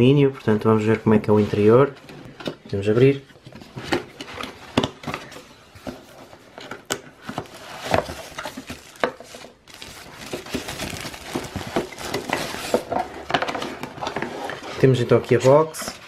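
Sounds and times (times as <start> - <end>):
cardboard packaging being opened: 3.6 - 14.6
plastic bag crinkling: 7.5 - 12.9.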